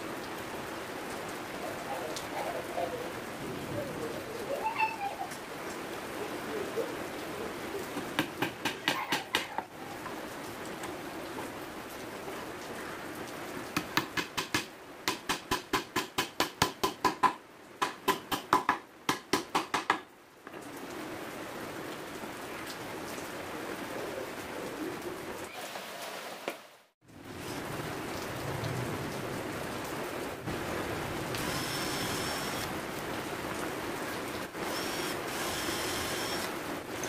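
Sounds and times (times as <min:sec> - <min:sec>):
steady hiss: 0:30.4 - 0:33.5, 0:34.4 - 0:37.0.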